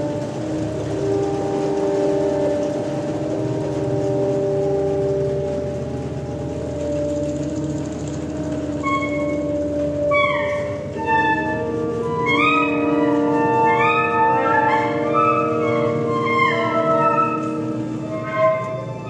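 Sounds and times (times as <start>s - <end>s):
saxophones playing held notes: 0.0s - 19.0s.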